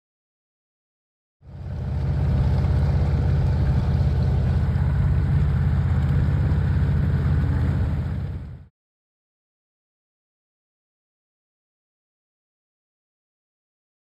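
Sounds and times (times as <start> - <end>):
boat motor droning: 1.4 - 8.7.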